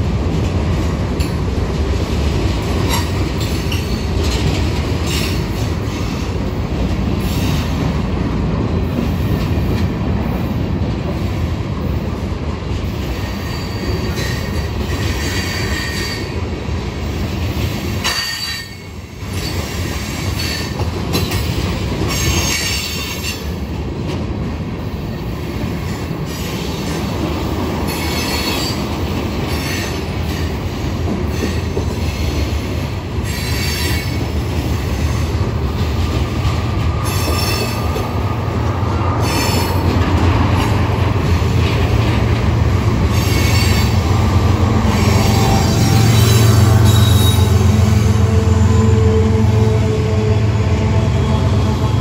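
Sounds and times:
freight train wheels rumbling: 0.0s - 52.0s
high-pitched wheel squeal: 44.9s - 48.4s.

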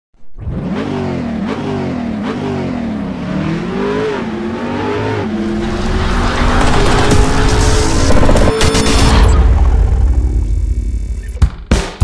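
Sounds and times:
engine revving: 0.3s - 11.3s.

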